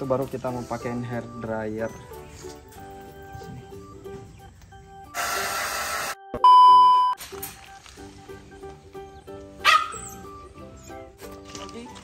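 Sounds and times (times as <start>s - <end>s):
loud electronic beep: 5.3s - 7.2s.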